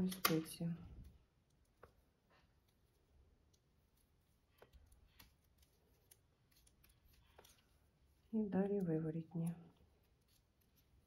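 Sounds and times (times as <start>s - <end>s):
knitting needles clicking: 0.0s - 11.0s.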